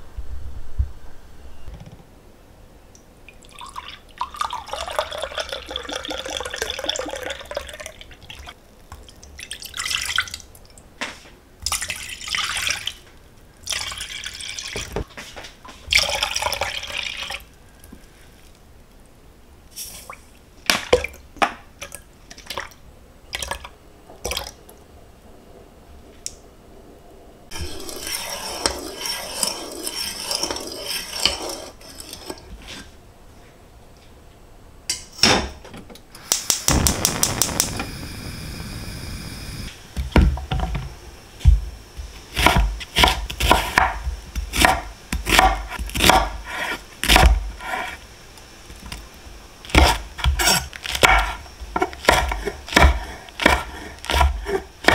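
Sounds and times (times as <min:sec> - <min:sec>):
steady hiss: 0:17.4 - 0:20.6, 0:36.2 - 0:54.9
knife chopping on wooden board: 0:42.4 - 0:47.4, 0:49.8 - 0:54.9.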